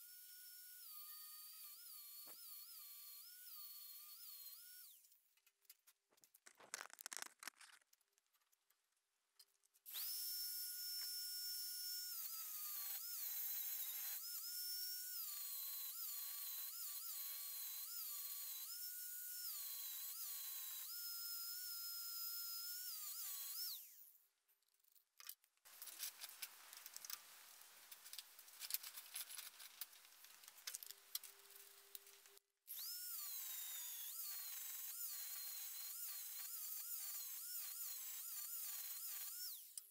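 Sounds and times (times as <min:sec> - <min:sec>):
angle grinder cutting steel: 0:09.9 - 0:24.1, 0:25.7 - 0:39.9.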